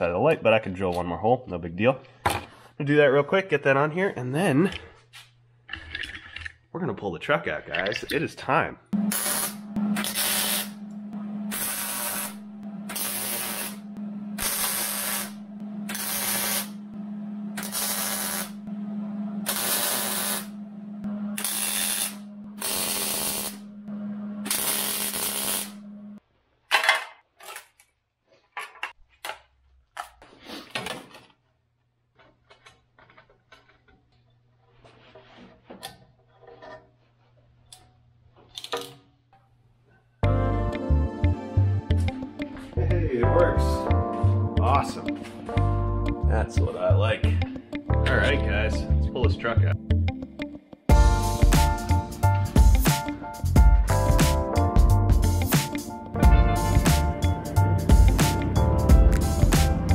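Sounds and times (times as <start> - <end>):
welder hum: 9.0 - 26.2, 55.3 - 59.9
arc welding: 9.1 - 10.8, 11.5 - 16.9, 17.6 - 18.6, 19.4 - 20.6, 21.4 - 23.7, 24.4 - 25.8.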